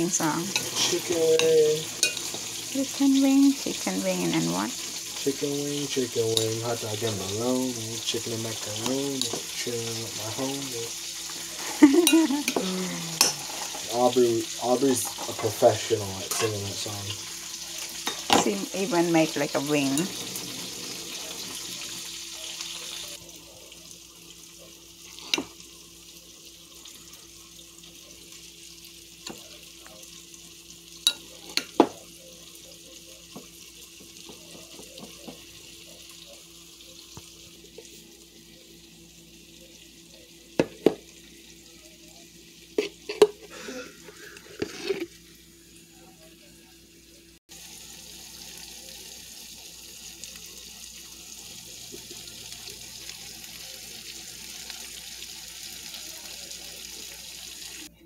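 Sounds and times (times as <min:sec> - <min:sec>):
steak sizzling in a pan: 0:00.0 - 0:57.9
fork clinking against bowl: 0:01.4 - 0:02.4.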